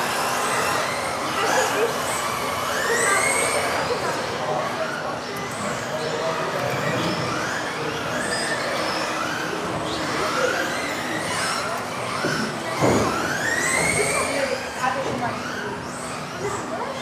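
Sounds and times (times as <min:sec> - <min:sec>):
electric rc car motors whining: 0:00.0 - 0:17.0
thump: 0:12.8 - 0:13.2.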